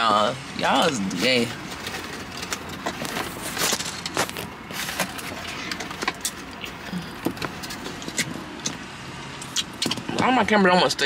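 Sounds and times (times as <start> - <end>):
chewing and lip smacks: 9.4 - 10.0.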